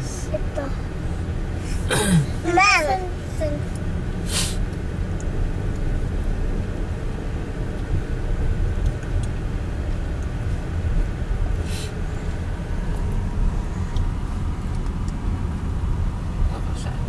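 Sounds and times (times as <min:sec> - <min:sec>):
car engine and tyre rumble: 0:00.0 - 0:17.0
short hissing bursts: 0:04.2 - 0:04.6.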